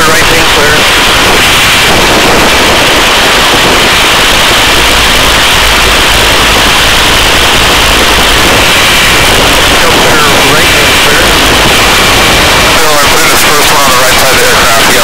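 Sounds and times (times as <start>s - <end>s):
helicopter rotor and engine noise: 0.0s - 15.0s
low rumble: 0.0s - 15.0s.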